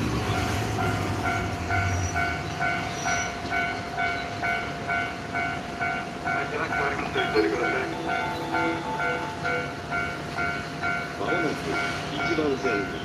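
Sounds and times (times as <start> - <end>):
bus engine pulling away: 0.0 - 4.4
level-crossing alarm bell: 0.3 - 13.0.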